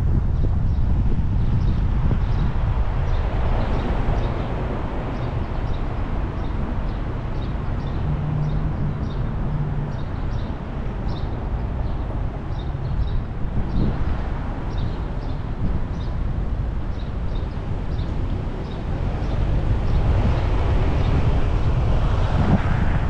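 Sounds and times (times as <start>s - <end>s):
car driving rumble: 0.0s - 23.0s
low drone: 2.7s - 13.8s.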